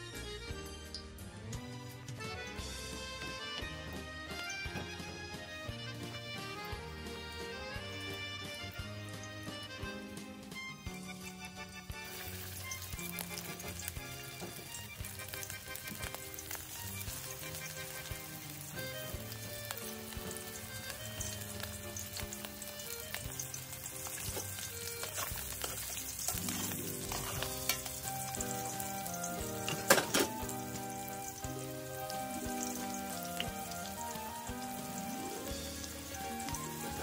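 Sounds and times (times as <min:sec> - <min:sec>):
fish frying in hot oil: 0:00.6 - 0:37.0
metal tongs clacking on pan: 0:24.0 - 0:28.6, 0:29.6 - 0:30.5.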